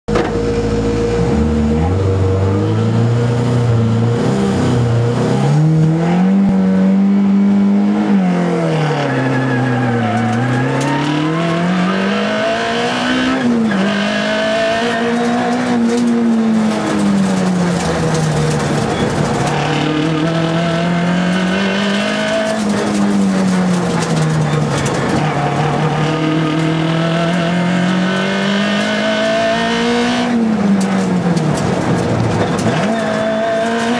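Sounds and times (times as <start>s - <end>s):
steady whine: 0.1s - 4.1s
rally car engine revving: 0.1s - 33.9s.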